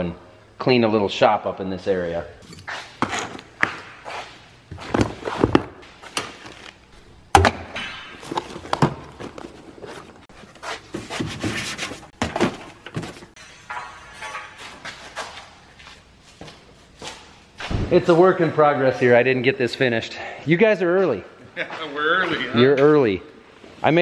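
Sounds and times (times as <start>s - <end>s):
sharp bang: 17.6s - 18.2s.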